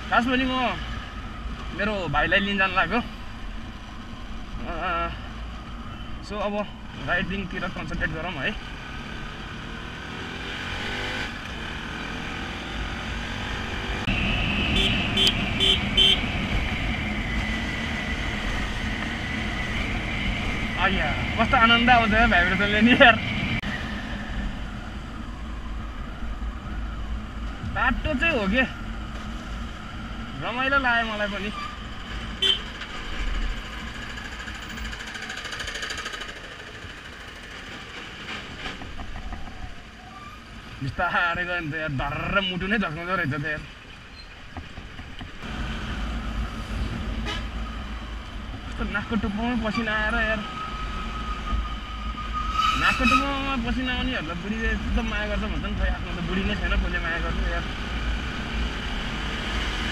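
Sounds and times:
road noise rushing: 0.0 - 59.9
horn beeps: 14.1 - 16.3, 32.4 - 32.7.

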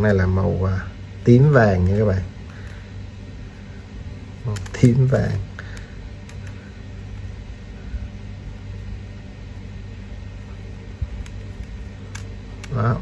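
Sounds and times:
steady low hum: 0.0 - 13.0
plastic puzzle clicks: 4.5 - 4.9, 11.2 - 13.0.

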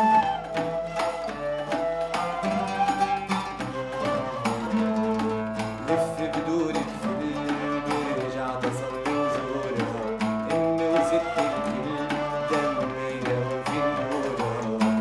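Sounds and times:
held melodic notes: 0.0 - 15.0
percussion beat: 0.0 - 15.0.

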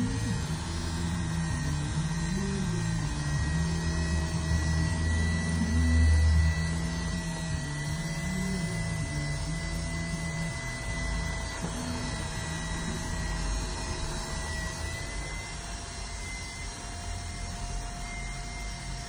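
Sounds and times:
hair clippers buzzing: 0.0 - 19.0.

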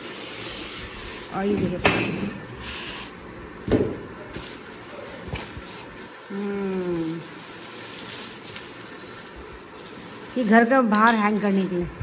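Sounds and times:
foam packing being handled: 4.1 - 10.6
plastic wrap rustling: 4.1 - 11.0
person humming: 6.3 - 7.3.

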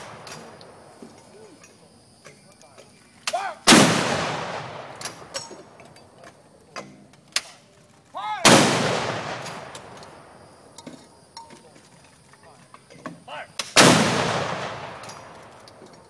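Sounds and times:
howitzer blasts with echo: 3.3 - 5.8, 8.3 - 10.7, 13.3 - 15.8.

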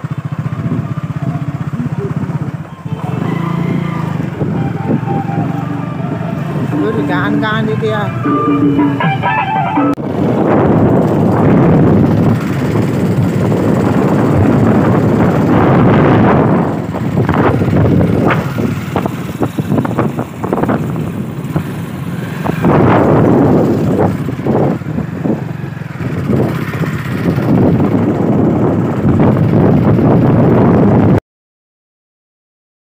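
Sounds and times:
wind buffeting microphone: 0.0 - 7.8, 10.0 - 31.2
motorcycle running: 0.0 - 31.2.

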